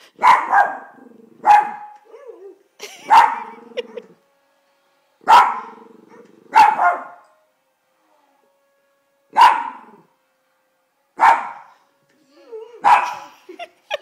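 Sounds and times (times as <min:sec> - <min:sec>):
small dog barking: 0:00.2 - 0:02.0, 0:03.1 - 0:03.5, 0:05.3 - 0:05.8, 0:06.5 - 0:07.2, 0:09.4 - 0:09.8, 0:12.8 - 0:13.3
dog growling: 0:05.6 - 0:06.6.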